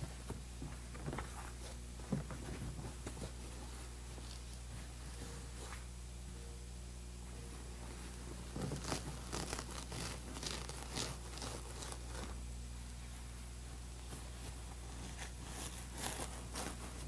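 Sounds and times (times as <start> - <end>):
steady low hum: 0.0 - 17.0
leather cover rustling and crinkling: 7.9 - 12.4, 14.0 - 17.0.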